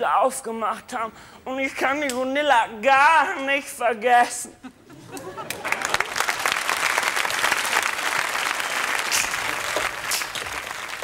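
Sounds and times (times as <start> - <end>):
studio audience applauding: 5.4 - 11.0.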